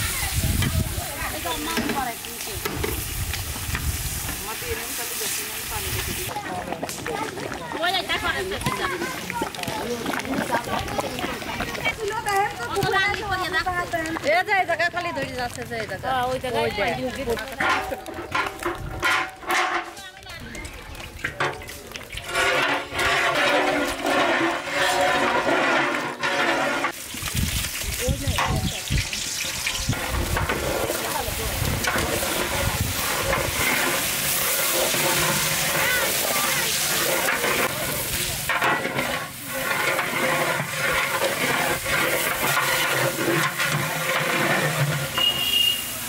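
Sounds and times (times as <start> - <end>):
rice mixture sloshing in metal pot: 17.2 - 19.9, 21.0 - 46.0.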